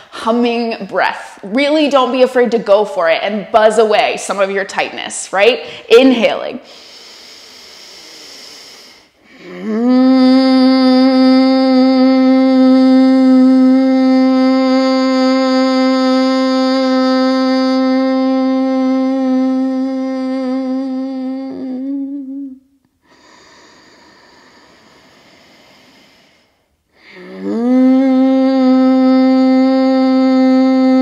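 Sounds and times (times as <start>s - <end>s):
quiet inhale: 6.6s - 9.9s, 23.0s - 27.8s
woman humming: 9.3s - 22.7s, 27.0s - 31.0s.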